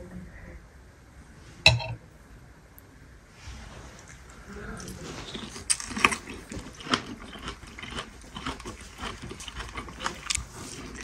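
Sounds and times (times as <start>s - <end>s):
chewing: 4.0s - 11.0s.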